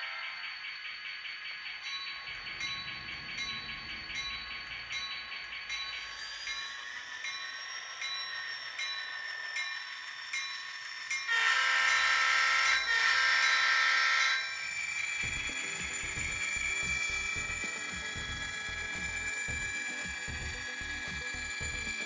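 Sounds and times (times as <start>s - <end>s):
quiet locomotive engine sound: 0.0s - 22.0s
model locomotive horn blasts: 11.3s - 14.6s.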